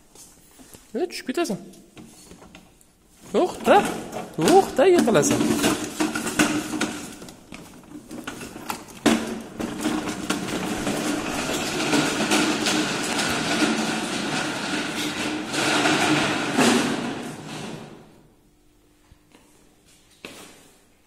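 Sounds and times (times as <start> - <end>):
toy car wheels rolling on tiles: 3.6 - 16.7.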